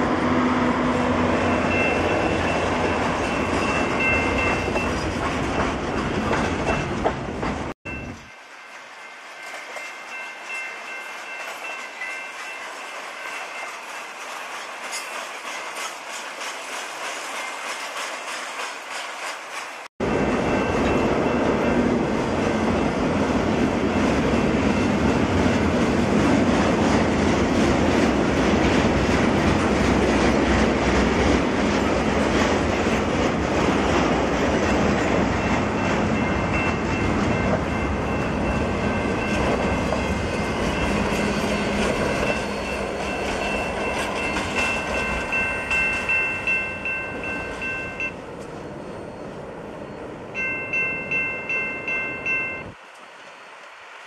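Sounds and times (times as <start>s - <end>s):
train wheels clattering on rails: 1.1s - 49.2s
level-crossing bell ringing: 1.4s - 5.8s, 7.8s - 14.3s, 35.4s - 52.8s.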